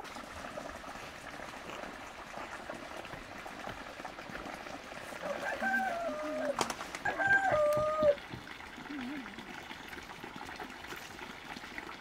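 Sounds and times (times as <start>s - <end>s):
water trickling and splashing: 0.0s - 12.0s
rooster crowing: 5.2s - 8.2s.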